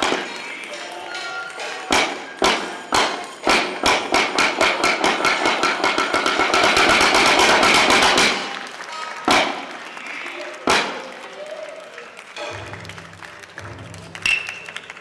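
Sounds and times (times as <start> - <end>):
wooden clappers striking a board: 0.0 - 8.5.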